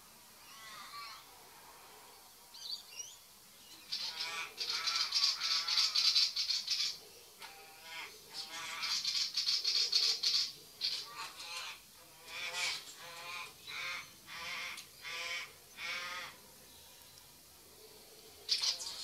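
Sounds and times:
crow calling: 3.9s - 16.4s.

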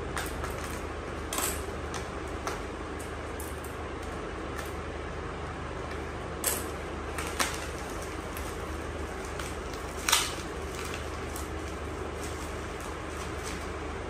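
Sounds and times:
low background hum: 0.0s - 14.0s
packaging crackling and knocking: 6.5s - 13.8s.

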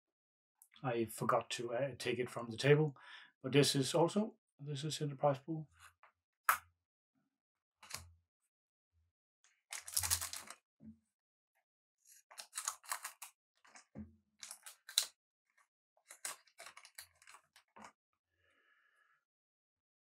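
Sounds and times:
wrapper crinkling and tearing: 9.7s - 10.6s, 12.3s - 13.8s, 14.4s - 15.1s, 16.1s - 17.9s.

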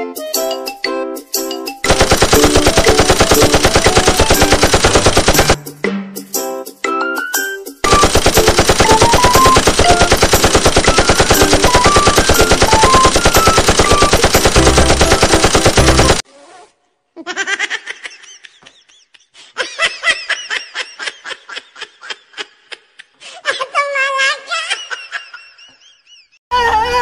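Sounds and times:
machine-gun fire: 1.8s - 5.6s, 7.8s - 16.2s.

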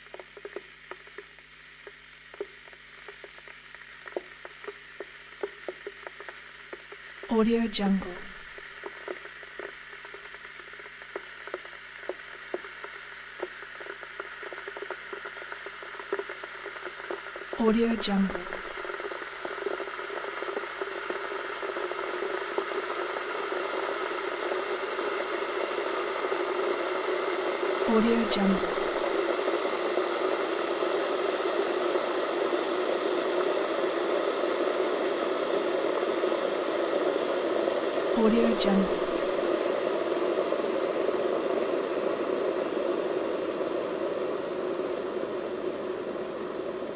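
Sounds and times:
small pops and ticks: 0.0s - 7.3s, 8.5s - 17.6s, 18.5s - 25.2s
electric kettle heating water: 23.7s - 46.9s
kettle heating water: 28.4s - 38.1s.

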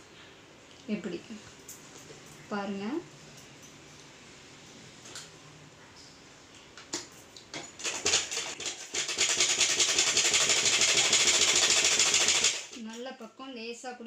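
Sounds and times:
sewing machine handwheel clicks: 7.8s - 12.8s
sewing machine stitching: 7.8s - 12.8s.

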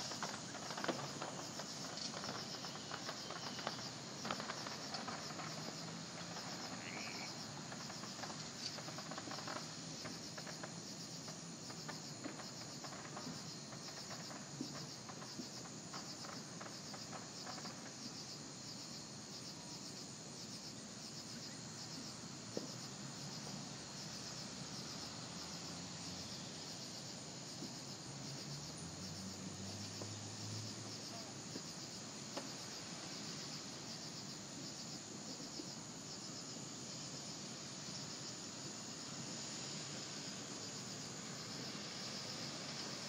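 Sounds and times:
insects chirping: 0.0s - 43.0s.

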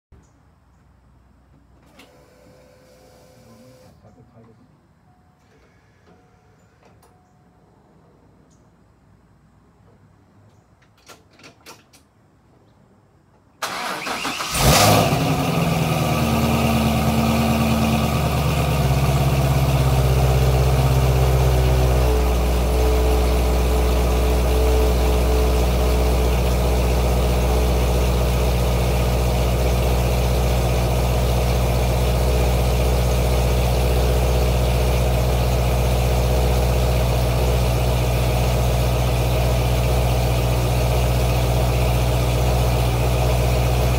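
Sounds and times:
car engine starting and idling: 13.6s - 43.9s.

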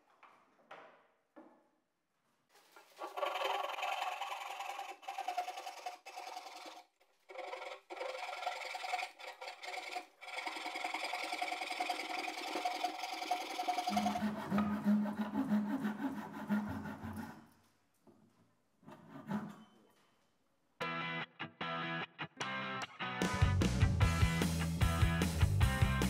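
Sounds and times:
hand saw cutting timber: 2.8s - 17.6s, 18.9s - 19.8s.

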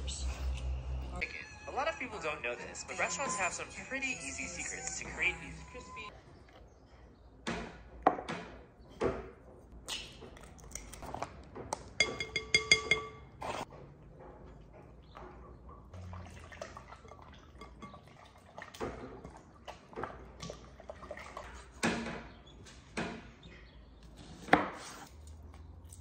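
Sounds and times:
bowl knocking on countertop: 12.0s - 13.1s.

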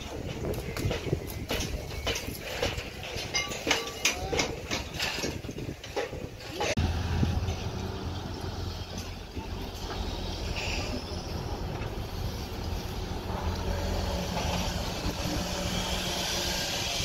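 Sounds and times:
diesel engine humming: 6.7s - 17.0s.

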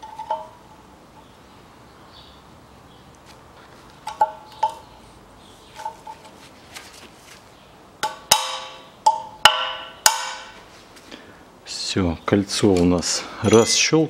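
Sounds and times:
ringing metallic clinks: 13.4s - 14.0s.

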